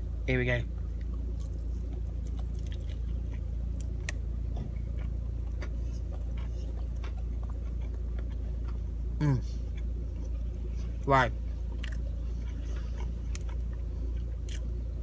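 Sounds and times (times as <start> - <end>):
man chewing food: 0.8 - 15.0.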